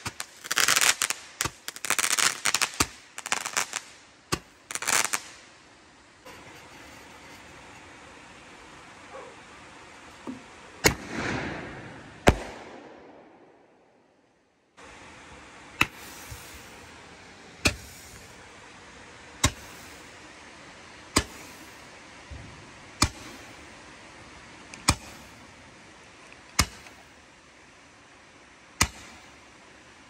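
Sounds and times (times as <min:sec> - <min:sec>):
firework cracks: 0:00.0 - 0:05.6, 0:10.8 - 0:14.0, 0:15.8 - 0:17.0, 0:17.6 - 0:18.4, 0:19.4 - 0:20.2, 0:21.1 - 0:21.8, 0:24.8 - 0:25.5, 0:26.5 - 0:27.1, 0:28.8 - 0:29.4
background hiss: 0:00.0 - 0:30.0.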